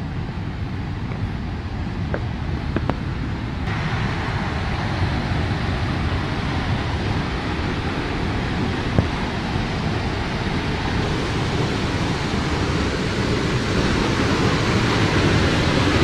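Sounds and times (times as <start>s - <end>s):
wind rumble on microphone: 0.0s - 16.0s
waterfall rushing: 3.7s - 16.0s.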